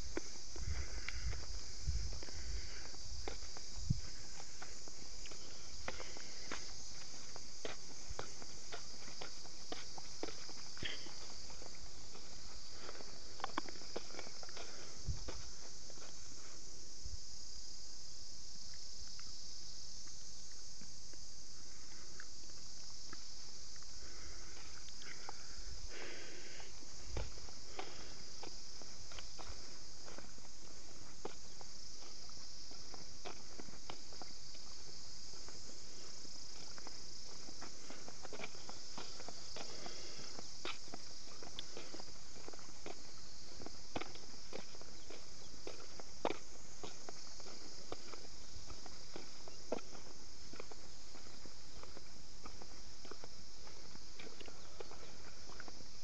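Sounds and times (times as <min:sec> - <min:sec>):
footsteps crunching on dirt track: 0:00.0 - 0:56.0
high-pitched insect chorus: 0:00.0 - 0:56.0
faint ticks: 0:24.8 - 0:25.4.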